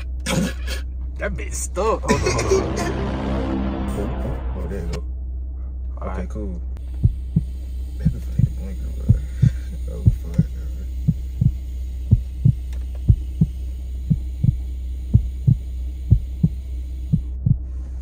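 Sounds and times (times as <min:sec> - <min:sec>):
steady low hum: 0:00.0 - 0:18.0
kick drum thumps: 0:11.1 - 0:17.6.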